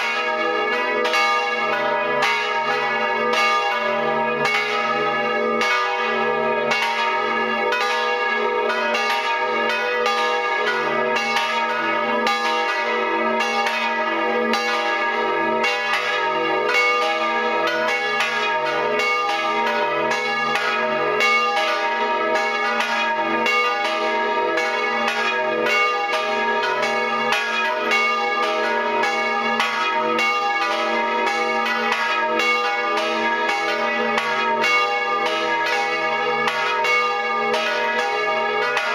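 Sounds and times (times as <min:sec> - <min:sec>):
church bells pealing: 0:00.0 - 0:38.9.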